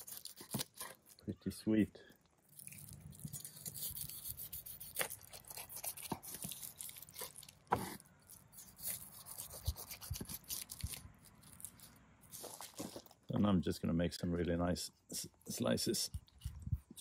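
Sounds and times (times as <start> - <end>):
knife scraping charred rind: 0.0 - 1.4, 2.5 - 13.3.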